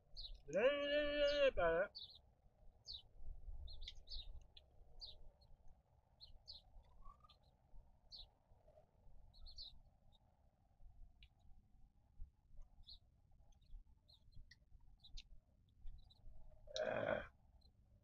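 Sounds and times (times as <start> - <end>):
small birds chirping: 0.0 - 17.8.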